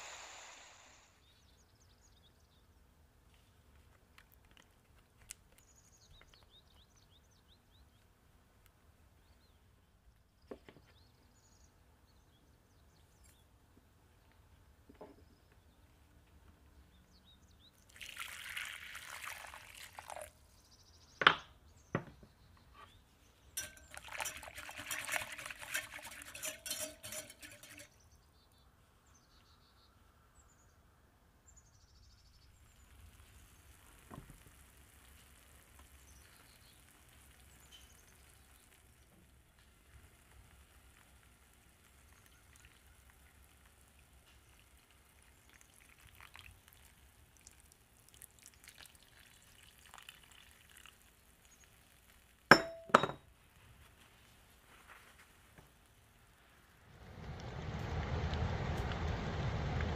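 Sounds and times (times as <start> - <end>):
spoon stirring liquid in a bowl: 23.6 - 27.9
utensil clinking on bowl: 23.6 - 27.9, 52.5 - 53.2.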